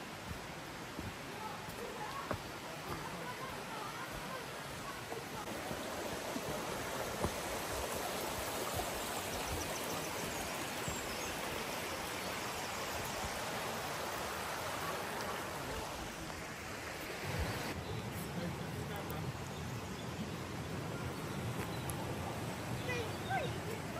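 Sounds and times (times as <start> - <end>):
stream running over stones: 0.0 - 23.9.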